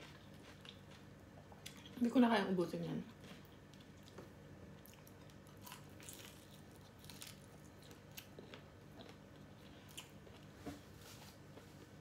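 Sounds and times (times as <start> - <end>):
chewing crunchy fried food: 0.0 - 2.1, 3.1 - 10.6
faint low hum: 0.0 - 12.0.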